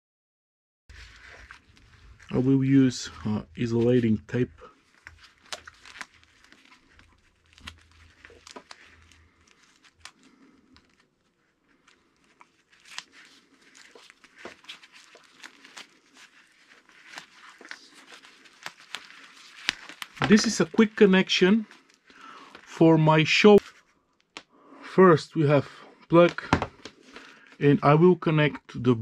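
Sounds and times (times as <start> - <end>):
tape peeling off roll: 0.9 - 20.8
gloved hands crackling and clicking: 0.9 - 22.8, 23.6 - 24.5, 26.1 - 27.6.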